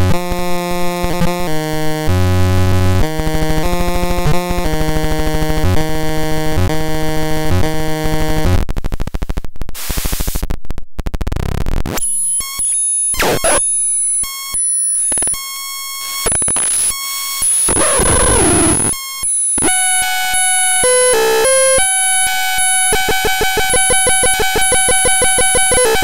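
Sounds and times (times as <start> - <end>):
harsh electronic synthesizer noise: 11.8 - 13.7, 15.1 - 26.0
tones jumping in pitch: 13.2 - 13.6.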